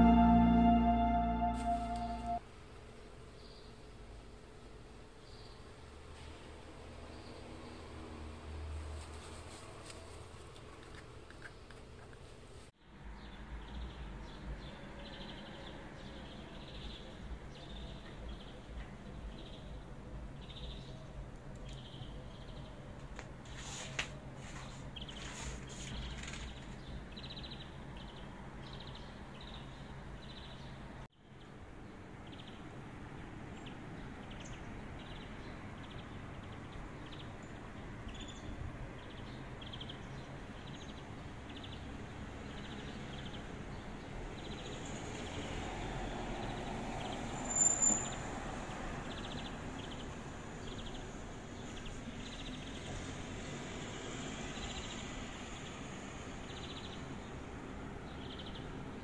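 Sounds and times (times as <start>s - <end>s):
small birds chirping: 13.2s - 24.0s, 24.6s - 31.6s, 32.2s - 32.7s, 33.5s - 45.4s, 49.0s - 53.1s, 56.4s - 57.4s, 58.1s - 59.0s.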